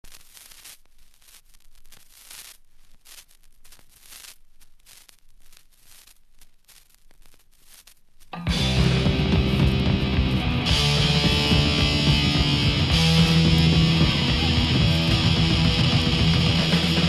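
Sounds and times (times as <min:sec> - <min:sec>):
vinyl crackles and pops: 0:00.0 - 0:17.0
punk music with distorted guitar: 0:08.4 - 0:17.0.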